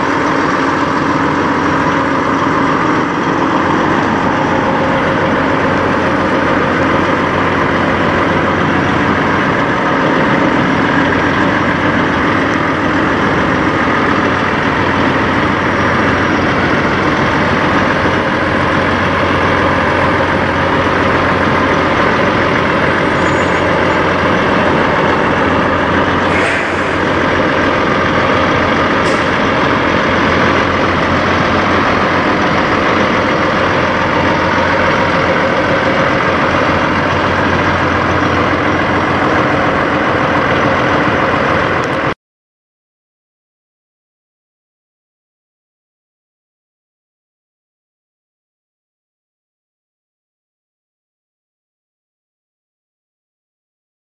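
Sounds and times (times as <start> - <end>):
diesel truck engine idling: 0.0 - 42.2.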